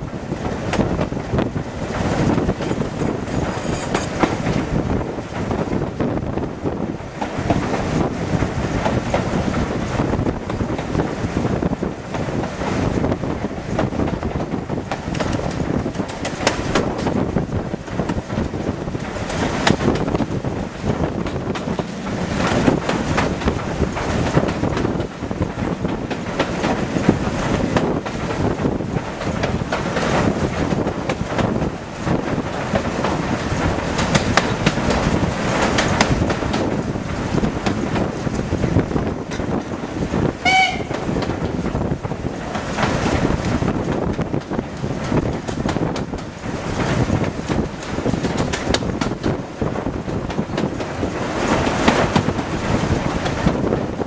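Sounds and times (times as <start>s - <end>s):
train wheels clattering over rail joints: 0.0s - 54.0s
wind rushing: 0.0s - 54.0s.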